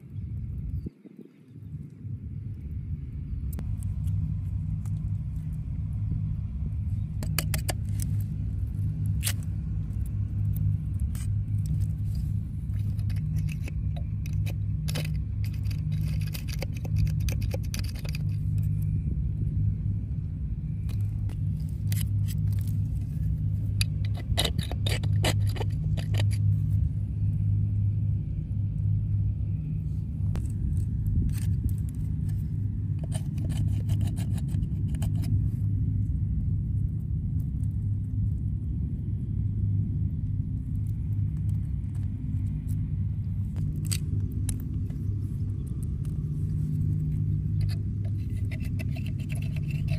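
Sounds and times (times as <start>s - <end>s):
low rumble: 0.0s - 49.9s
metal pick scraping oyster shells: 7.1s - 9.5s, 10.5s - 18.9s, 20.9s - 26.6s, 30.4s - 35.4s, 43.5s - 45.0s, 45.6s - 49.9s.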